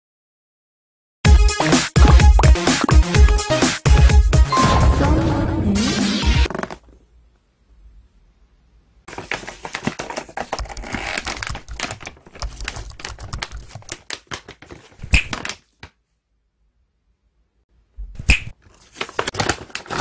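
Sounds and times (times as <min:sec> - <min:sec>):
plastic packaging crinkling: 0:09.1 - 0:15.9, 0:18.7 - 0:20.0.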